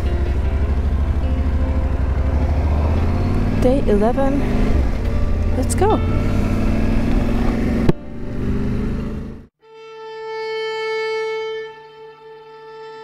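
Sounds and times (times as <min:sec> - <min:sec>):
motorcycle engine: 0:00.0 - 0:09.5
background music: 0:00.0 - 0:13.0.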